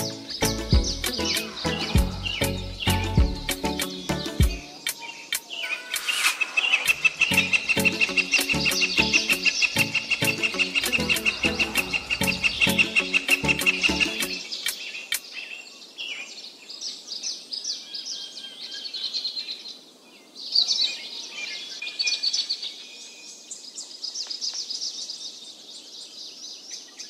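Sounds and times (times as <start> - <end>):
background music: 0.0 - 14.8
small birds chirping and trilling: 0.0 - 27.0.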